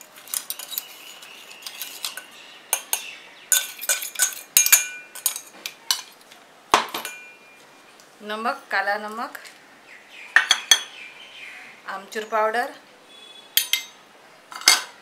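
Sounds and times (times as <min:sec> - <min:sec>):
steel spoon scraping in jar: 0:00.0 - 0:06.1
metallic clinks: 0:13.6 - 0:14.0.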